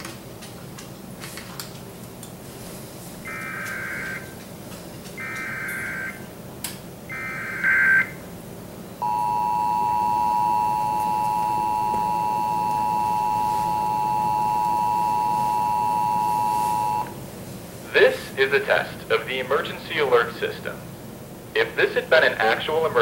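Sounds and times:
two-tone attention signal: 5.2 - 6.2, 7.1 - 8.2, 9.0 - 17.1
data tone bursts: 9.0 - 17.1.

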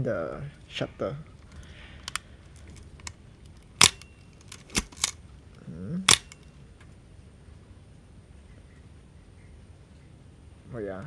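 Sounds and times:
small camera mechanism clicks: 1.5 - 5.2, 6.1 - 6.5
camera shutter clicks: 3.8 - 5.2, 6.1 - 6.5.

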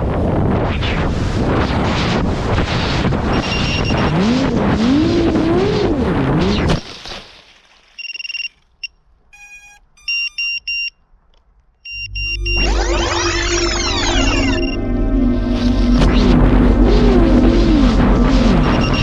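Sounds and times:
wind noise: 0.0 - 6.3, 14.8 - 19.0
short high electronic beeps: 9.4 - 10.9, 11.9 - 16.0, 18.6 - 19.0
drone motors whining: 11.9 - 19.0.

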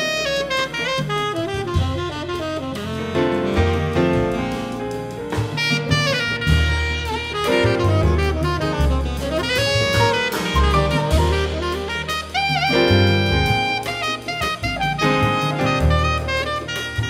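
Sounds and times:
double bass: 0.0 - 17.0
drum kit: 0.0 - 17.0
piano: 0.0 - 17.0
saxophones playing melody: 0.0 - 17.0.

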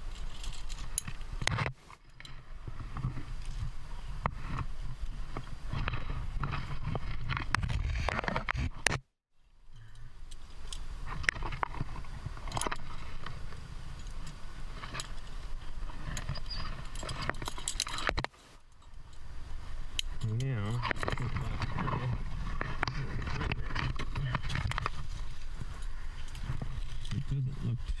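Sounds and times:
climbing gear clinking: 0.0 - 8.5, 9.7 - 19.2, 19.9 - 27.4
hands and shoes scraping rock: 4.3 - 8.8.

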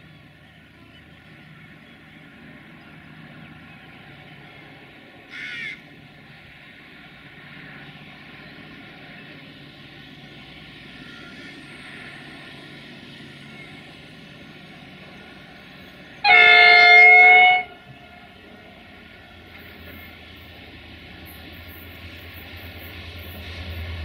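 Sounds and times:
distant diesel locomotive hum: 0.0 - 24.0
crow cawing: 5.3 - 5.8.

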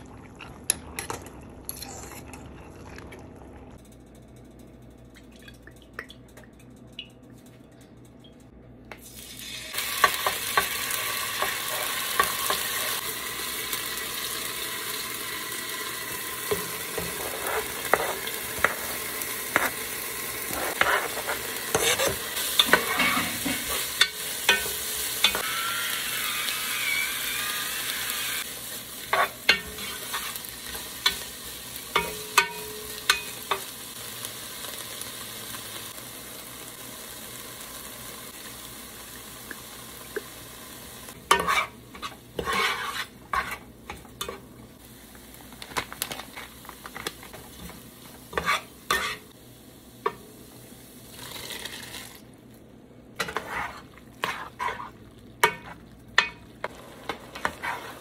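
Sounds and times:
food sizzling in hot oil: 9.0 - 52.3, 53.2 - 58.0
spatula scraping and tapping a pot: 16.5 - 19.8, 20.5 - 25.5, 41.3 - 44.4, 47.6 - 49.2, 53.2 - 58.0.

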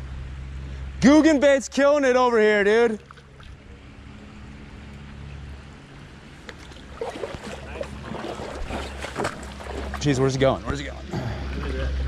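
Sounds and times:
moving water: 0.0 - 12.0
faint water splashes: 2.7 - 12.0.

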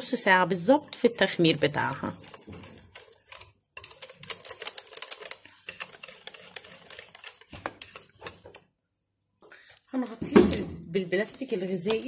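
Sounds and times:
whisk clicking against glass bowl: 0.9 - 8.6.

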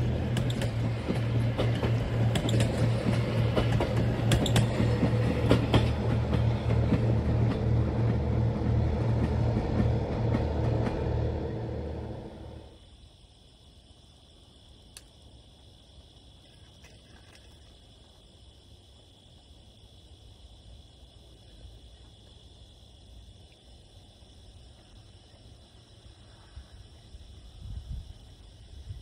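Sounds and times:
wheels clicking and clattering: 0.0 - 7.0
train wheels rumbling on rails: 0.0 - 12.8
insect chirping: 0.0 - 29.0.

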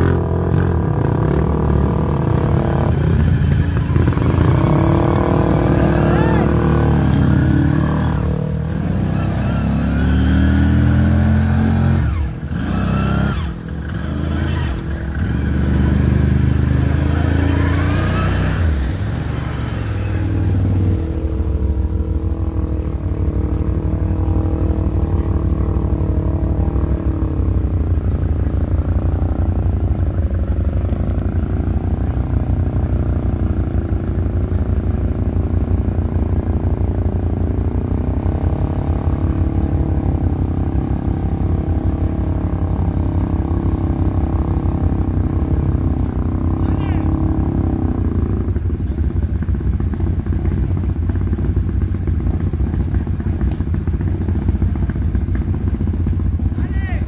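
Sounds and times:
water splashing: 0.0 - 44.8
atv engine throbbing: 0.0 - 57.0.

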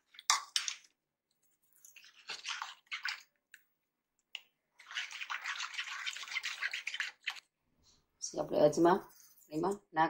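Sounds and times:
spoon beating batter in bowl: 1.8 - 3.7, 4.3 - 7.5.

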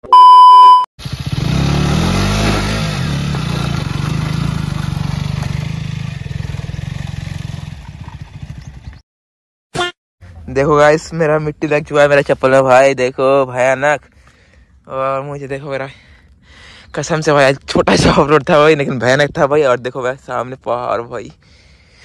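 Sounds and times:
motorcycle engine revving: 1.0 - 9.0.

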